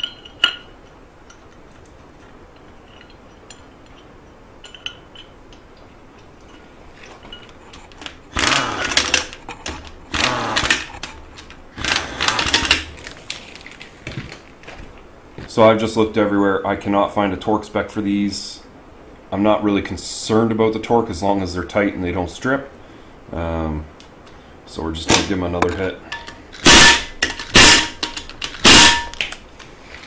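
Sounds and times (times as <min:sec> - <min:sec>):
impact wrench rattling: 0:02.5 - 0:05.7, 0:06.4 - 0:13.8, 0:25.2 - 0:29.4
clicks of parts handled: 0:25.2 - 0:29.7.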